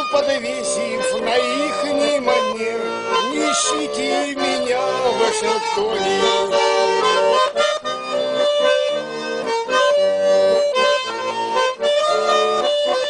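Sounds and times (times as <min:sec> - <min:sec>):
accordion melody with chords: 0:00.0 - 0:13.0
backing music: 0:00.0 - 0:13.0.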